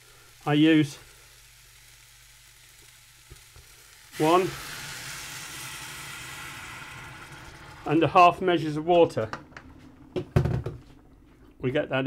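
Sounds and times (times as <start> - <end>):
water sizzling in hot pan: 0.0 - 8.9.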